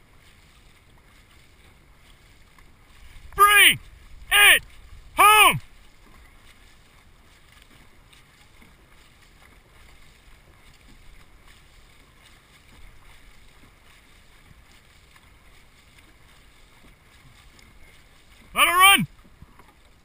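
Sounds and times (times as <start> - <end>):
boat hull moving through water: 0.0 - 20.0
paddles splashing water: 0.0 - 20.0
wind on microphone: 3.0 - 5.2.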